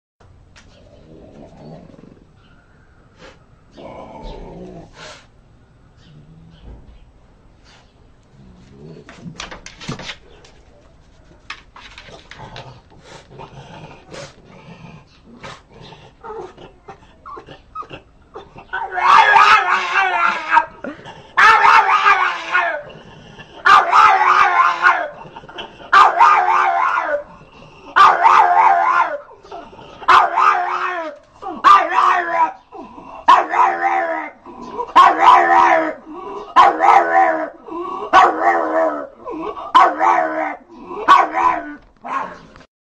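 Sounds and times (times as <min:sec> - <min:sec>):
small dog barking: 0:19.0 - 0:20.7, 0:21.4 - 0:22.6, 0:23.6 - 0:25.1, 0:25.9 - 0:27.1, 0:28.0 - 0:29.2, 0:30.1 - 0:30.8, 0:31.6 - 0:32.5, 0:33.3 - 0:34.0, 0:34.9 - 0:36.0, 0:36.6 - 0:37.4, 0:38.1 - 0:39.0, 0:39.7 - 0:42.4.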